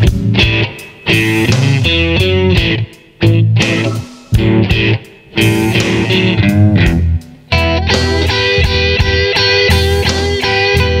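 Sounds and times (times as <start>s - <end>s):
electric guitar blues lead: 0.0s - 11.0s.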